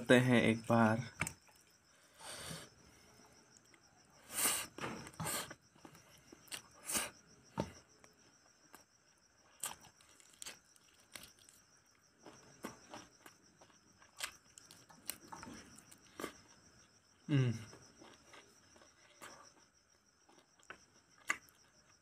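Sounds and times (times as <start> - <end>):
insects chirring: 0.0 - 22.0
chewing: 9.5 - 11.6, 12.2 - 16.6, 17.7 - 22.0.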